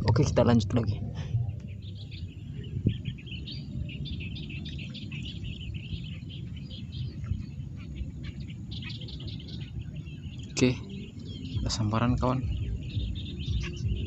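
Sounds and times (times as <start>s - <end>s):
small birds chirping: 0.0s - 14.0s
wind rumble on microphone: 0.0s - 14.0s.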